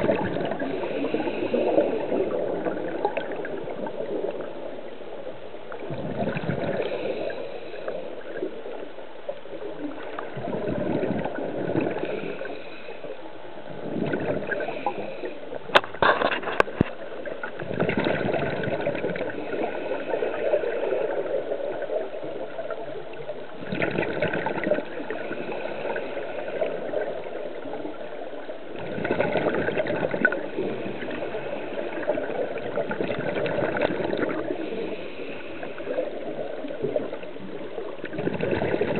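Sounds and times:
river water gurgling and rushing: 0:00.0 - 0:04.7.

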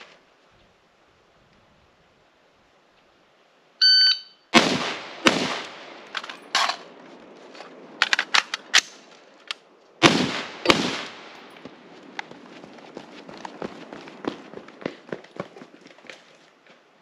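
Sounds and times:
shot timer beep: 0:03.8 - 0:04.4
rifle shots: 0:04.5 - 0:06.8, 0:10.0 - 0:11.5
magazine change clicks and clatter: 0:05.6 - 0:06.9, 0:07.6 - 0:09.6.

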